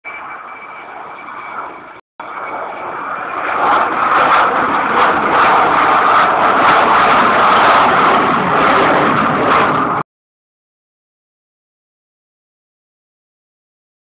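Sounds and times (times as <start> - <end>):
jet aircraft roaring overhead: 0.0 - 10.0.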